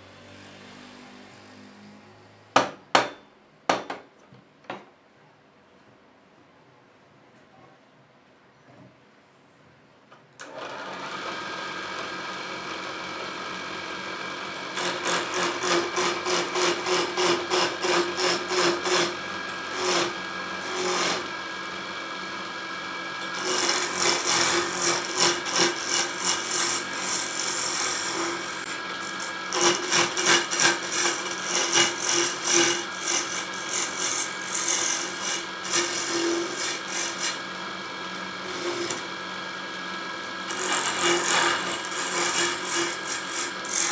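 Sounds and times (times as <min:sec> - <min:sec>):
wood lathe motor humming: 0:10.4 - 0:43.9
turning tool scraping wood: 0:14.7 - 0:21.4, 0:23.2 - 0:37.5, 0:38.4 - 0:39.1, 0:40.3 - 0:43.9.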